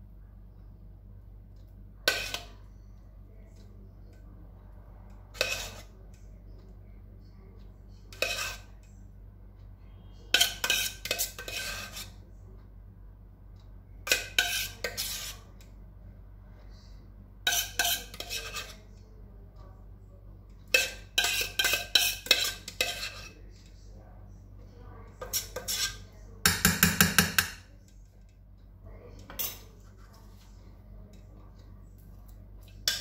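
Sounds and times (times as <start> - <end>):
metal spoon scraping saucepan: 2.1 - 2.6, 5.4 - 6.0, 8.1 - 8.8, 10.2 - 12.2, 14.1 - 15.5, 17.4 - 18.9, 20.7 - 23.4, 25.2 - 27.7, 29.2 - 30.5, 32.6 - 33.0
spoon tapping saucepan: 20.7 - 23.2, 25.2 - 27.7.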